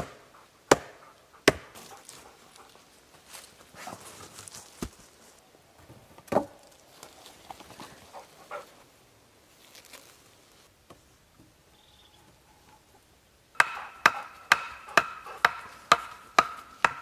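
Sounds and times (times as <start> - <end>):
wooden logs knocking: 6.2 - 6.6, 13.6 - 17.0.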